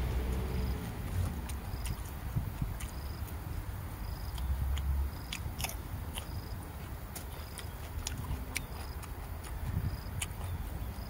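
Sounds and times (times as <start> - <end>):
person chewing leafy greens: 0.0 - 11.0
wet mouth clicks: 4.2 - 10.6.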